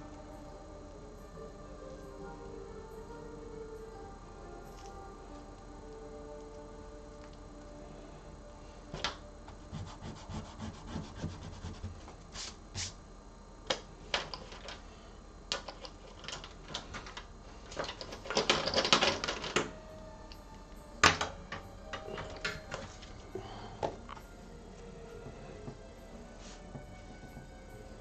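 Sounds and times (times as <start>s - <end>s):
drawing tools scratching paper: 9.5s - 12.0s.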